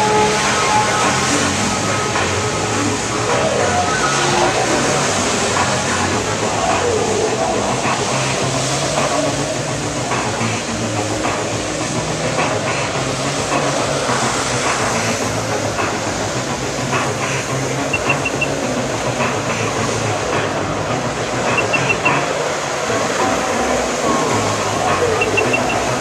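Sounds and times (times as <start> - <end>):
jet ski engine running hard: 0.0 - 26.0
water jets spraying: 0.0 - 26.0
short high chirps: 17.9 - 18.5, 21.5 - 22.1.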